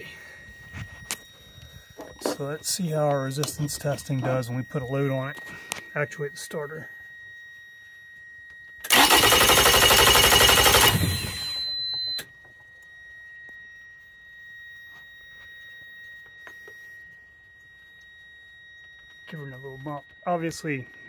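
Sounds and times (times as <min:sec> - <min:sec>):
multimeter steady high beep: 0:00.0 - 0:21.0
electric starter cranking engine: 0:08.8 - 0:11.7.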